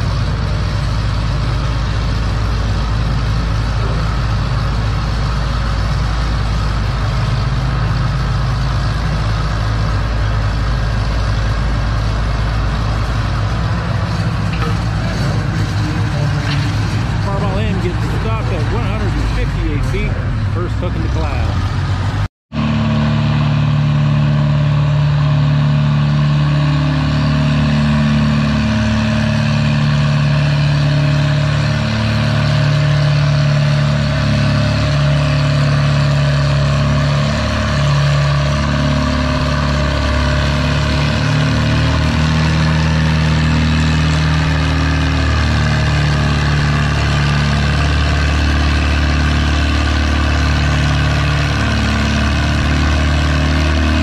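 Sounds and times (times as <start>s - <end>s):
tractor engine running under load: 0.0s - 54.0s.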